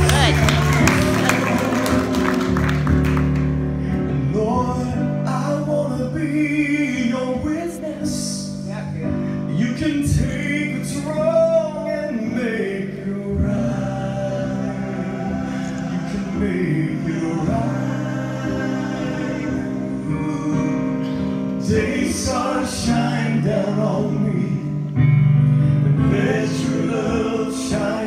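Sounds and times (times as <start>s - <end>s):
keyboard chords: 0.0s - 28.0s
solo male voice singing: 4.1s - 8.7s, 9.5s - 21.0s
men singing gospel: 9.5s - 24.9s, 25.9s - 28.0s.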